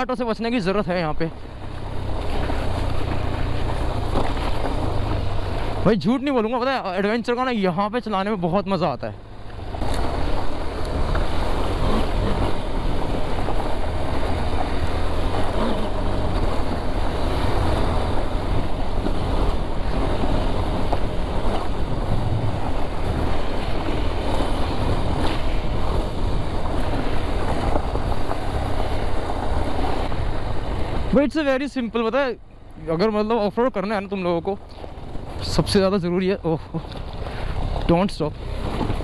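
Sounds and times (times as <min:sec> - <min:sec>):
motorcycle engine: 0:00.0 - 0:05.8, 0:09.0 - 0:31.2
wind rushing over microphone: 0:09.3 - 0:31.4.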